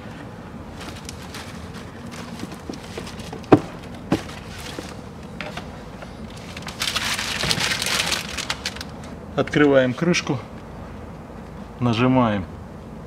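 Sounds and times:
scraping and rustling: 0.7 - 9.1
plastic knocks: 2.3 - 4.9.

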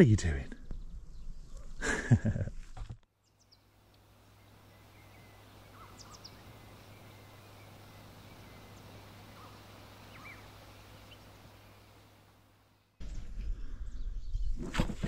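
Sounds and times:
low hiss and hum: 0.0 - 14.6
faint bird chirps: 3.2 - 12.0.

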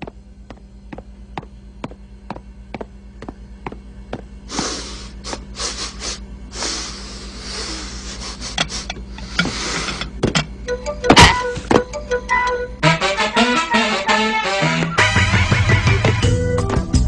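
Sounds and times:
cartoon footsteps tapping: 0.0 - 4.3
low hum: 0.0 - 17.0
hissing huffs and snorts: 4.5 - 10.1.

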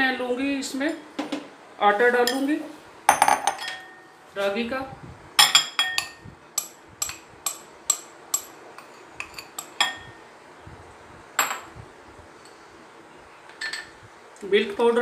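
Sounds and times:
spoon clinking against glass bowl: 5.4 - 10.2.

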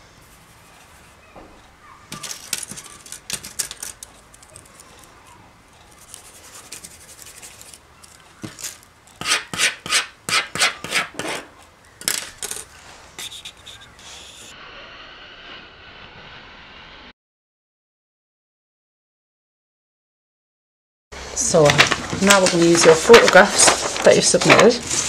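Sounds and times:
pencil scraping on paper: 5.9 - 7.8, 9.2 - 11.5, 13.0 - 14.5.

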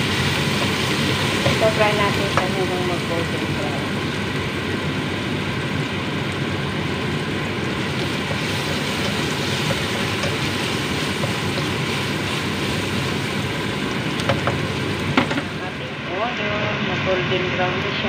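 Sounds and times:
onions sizzling in hot oil: 0.0 - 16.1
spatula tapping pan: 8.2 - 12.0, 14.2 - 14.6.

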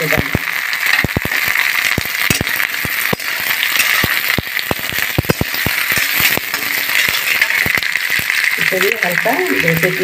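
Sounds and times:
hot oil sizzling: 0.0 - 10.0
metal spatula scraping a wok: 0.8 - 8.6.

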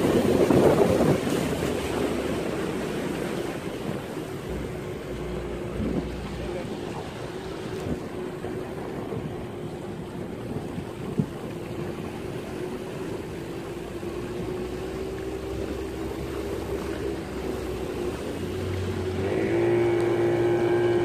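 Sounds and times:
wind noise: 0.0 - 13.3
small boat motor running: 0.0 - 21.0
water noise: 0.0 - 21.0.

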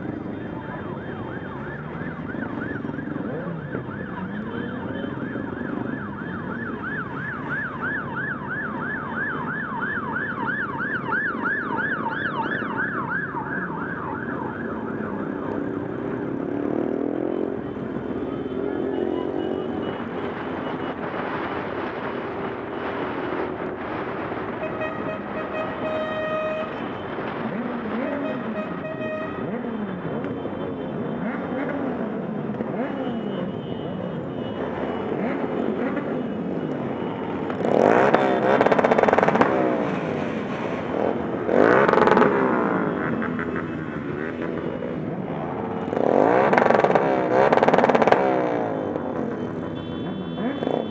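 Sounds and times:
siren yelping: 0.0 - 21.5
motorcycle engines revving: 0.0 - 50.9.

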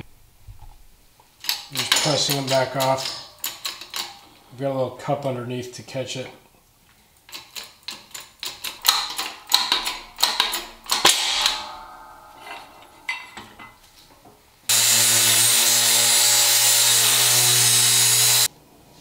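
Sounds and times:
metallic clicks of shop press: 7.3 - 11.8
angle grinder grinding metal: 8.9 - 14.0, 14.7 - 18.5.

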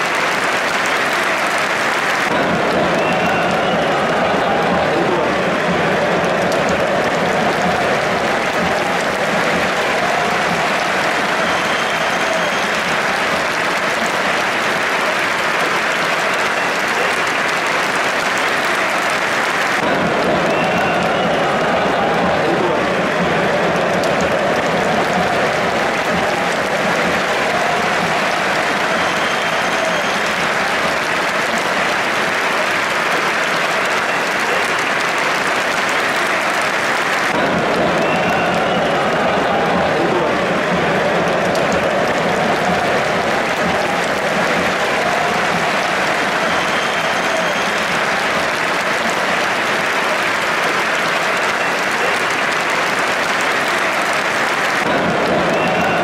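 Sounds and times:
stadium crowd applauding: 0.0 - 56.0.

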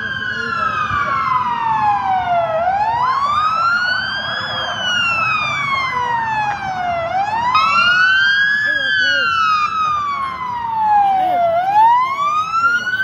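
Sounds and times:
police siren wailing: 0.0 - 13.0
second siren rapid rising: 0.0 - 13.0.

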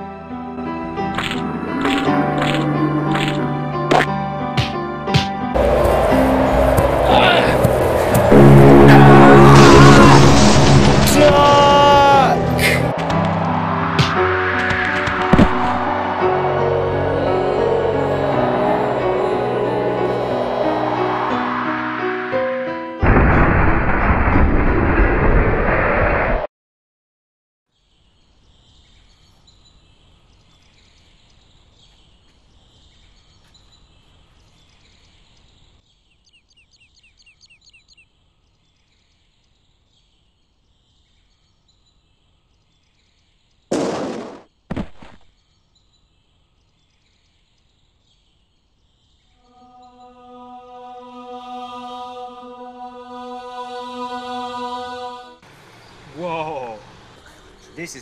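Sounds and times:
heavenly choir sound effect: 0.2 - 4.4, 5.4 - 24.1, 49.4 - 55.5
faint outdoor background noise: 27.7 - 53.5, 54.8 - 58.0.

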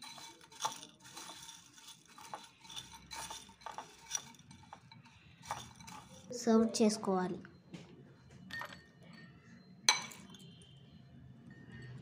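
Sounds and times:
spatula scraping bowl: 0.0 - 6.3.

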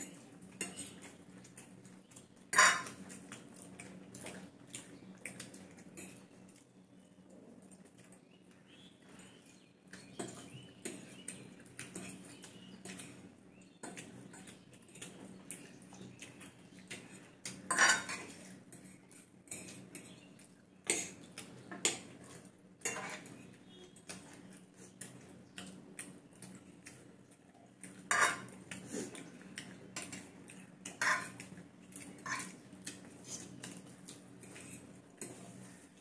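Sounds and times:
forks clinking on plates: 2.5 - 3.0, 17.7 - 18.9, 22.8 - 23.3, 28.1 - 28.5, 30.9 - 31.4, 32.2 - 32.6.

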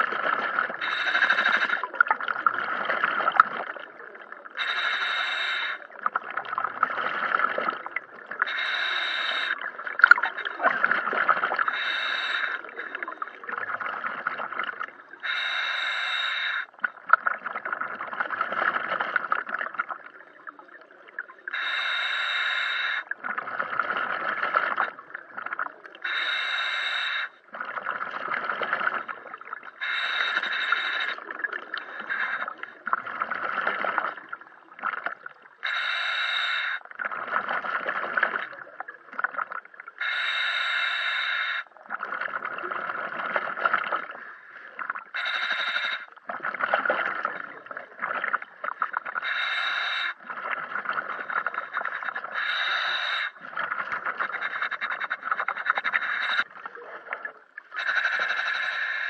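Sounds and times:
hissing regulator inhale: 0.8 - 1.9, 4.6 - 5.9, 8.4 - 9.6, 11.7 - 13.2, 15.2 - 16.8, 21.5 - 23.1, 26.0 - 27.5, 29.7 - 32.8, 35.6 - 36.8, 40.0 - 41.7, 44.2 - 46.2, 48.8 - 50.3, 50.9 - 56.5, 57.8 - 59.0
bubbling gurgling exhale: 41.7 - 59.0.

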